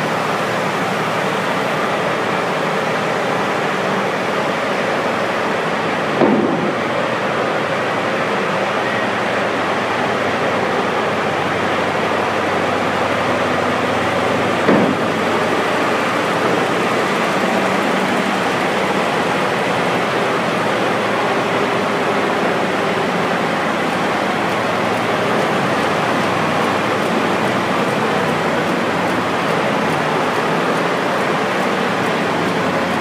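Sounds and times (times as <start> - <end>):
mining truck engine rushing: 0.0 - 33.0
short knock: 6.2 - 6.8, 14.7 - 15.1.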